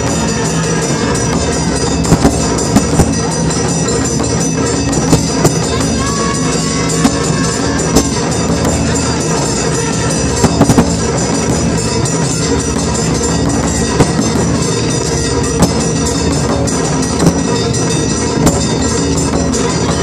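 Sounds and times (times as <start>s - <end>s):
accented drum strikes: 0.0s - 20.0s
drum ensemble playing: 0.0s - 20.0s.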